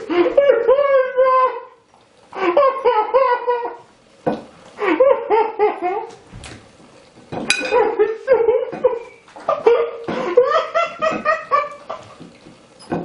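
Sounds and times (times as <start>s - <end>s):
high-pitched laughter: 0.0s - 1.8s
cutlery clinking on plate: 7.4s - 7.9s.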